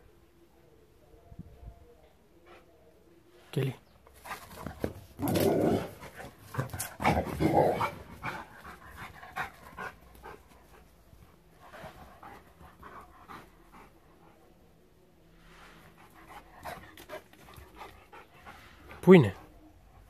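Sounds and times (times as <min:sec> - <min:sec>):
dog panting: 0:06.0 - 0:14.6, 0:15.9 - 0:20.0.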